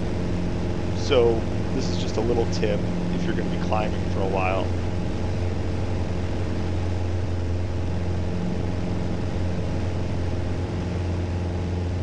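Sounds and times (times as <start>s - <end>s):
airplane engine droning in cockpit: 0.0s - 12.0s.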